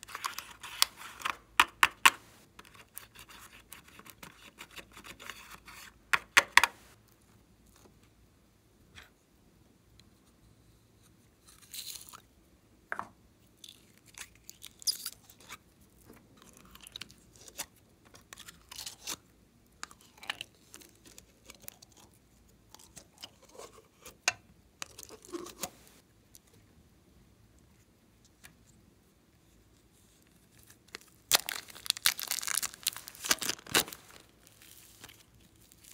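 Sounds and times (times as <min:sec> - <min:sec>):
plastic spatula scraping palette: 0:02.0 - 0:06.8, 0:24.8 - 0:26.0.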